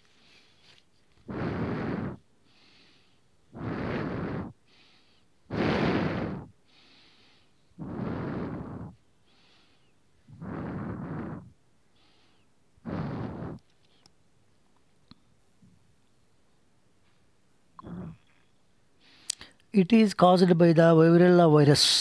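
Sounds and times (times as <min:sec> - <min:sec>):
faint inhales: 0:00.0 - 0:14.1, 0:19.0 - 0:19.6
person exhaling loudly: 0:01.3 - 0:04.6.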